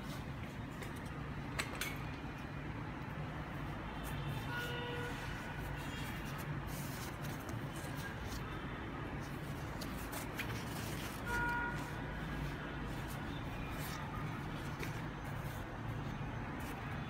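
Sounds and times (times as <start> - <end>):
fabric rustling and scuffing: 3.9 - 17.0.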